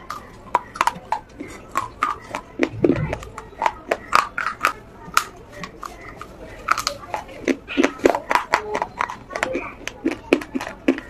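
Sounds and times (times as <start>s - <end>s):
clay being crunched by teeth: 6.7s - 11.0s.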